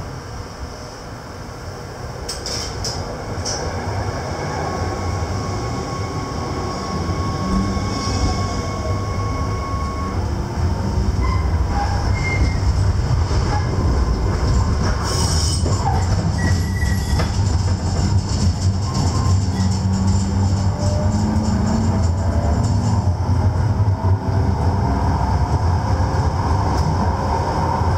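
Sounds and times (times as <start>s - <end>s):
tram motors and wheels rumbling: 0.0s - 27.9s.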